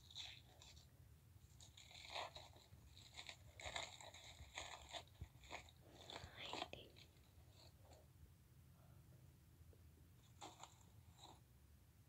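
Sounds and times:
faint breathy whispering: 5.8s - 8.0s.

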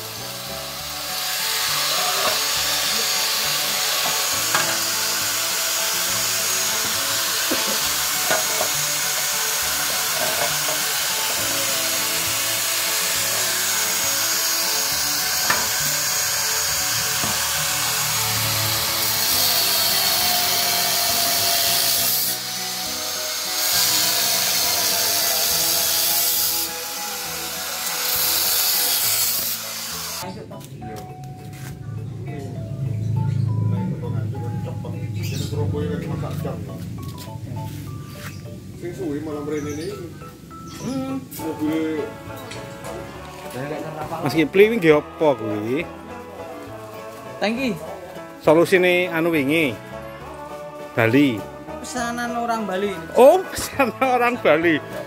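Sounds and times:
angle grinder cutting metal: 0.0s - 30.3s.

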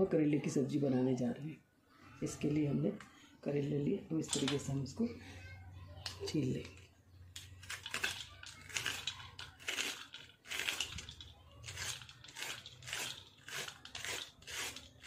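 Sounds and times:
vegetable peeler scraping skin: 7.4s - 15.0s.

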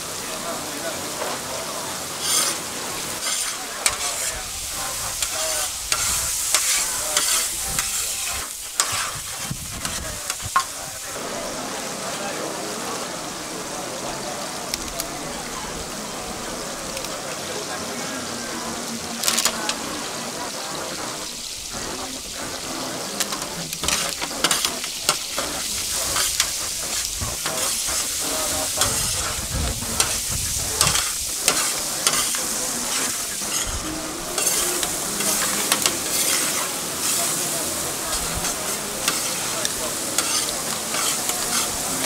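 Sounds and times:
food sizzling in oil: 0.0s - 42.0s
metal spatula scraping pan: 2.2s - 10.8s, 23.3s - 42.0s.

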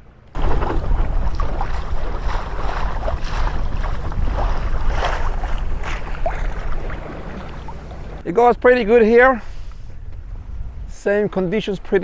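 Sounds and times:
water splashing along hull: 0.4s - 8.2s
wind buffeting microphone: 0.4s - 12.0s.

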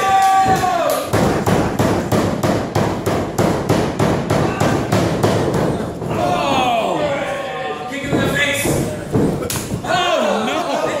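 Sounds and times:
rapid rhythmic banging: 0.0s - 6.8s, 8.0s - 10.0s.

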